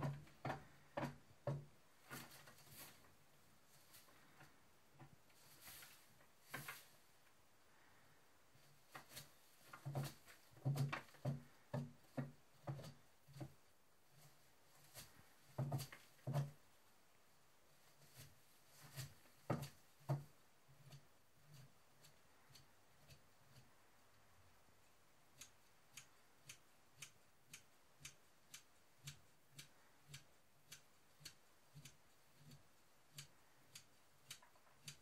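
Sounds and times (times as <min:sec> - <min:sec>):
steady ticking: 0:19.5 - 0:35.0.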